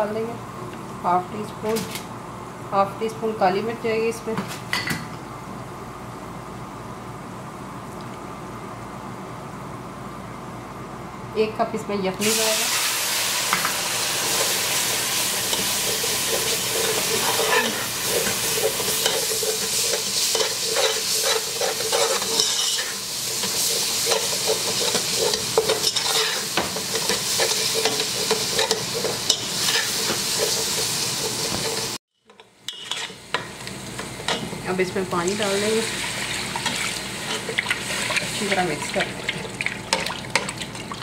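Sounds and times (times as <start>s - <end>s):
sauce sizzling in a pan: 12.2s - 32.0s, 32.7s - 40.6s
spatula scraping a pan: 14.3s - 32.0s, 32.7s - 33.4s, 35.9s - 38.6s.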